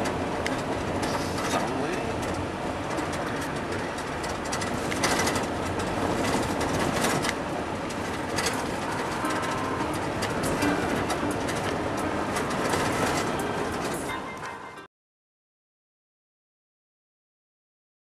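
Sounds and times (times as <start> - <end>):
light clicks and rattles: 0.0 - 9.2
road and wind rush in vehicle: 0.0 - 14.9.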